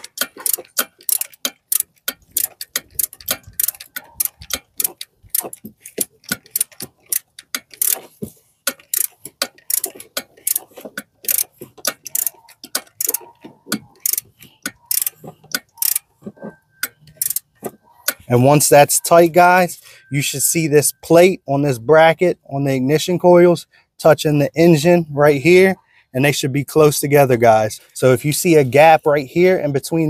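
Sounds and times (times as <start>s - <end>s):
hand ratchet clicking: 0.0s - 18.4s.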